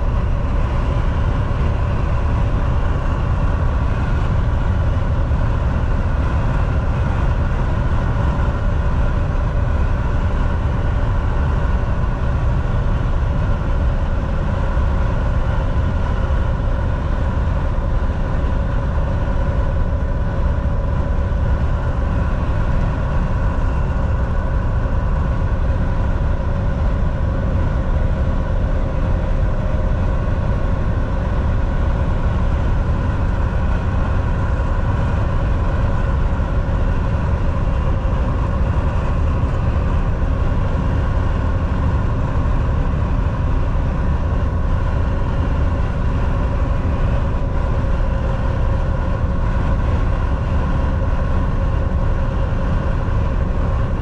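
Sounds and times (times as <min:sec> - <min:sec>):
road noise: 0:00.0 - 0:51.4
truck engine rumble: 0:00.0 - 0:54.0.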